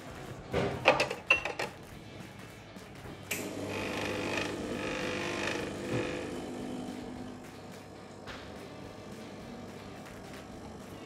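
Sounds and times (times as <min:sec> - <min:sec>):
espresso pump buzzing: 0:03.3 - 0:11.0.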